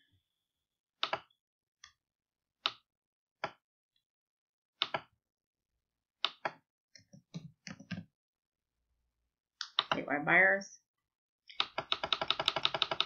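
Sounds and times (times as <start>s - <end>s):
computer mouse clicks: 9.6s - 10.0s.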